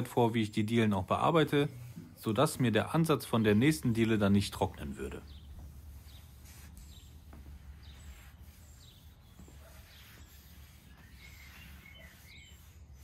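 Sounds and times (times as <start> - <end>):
bird chirps: 5.2 - 12.9.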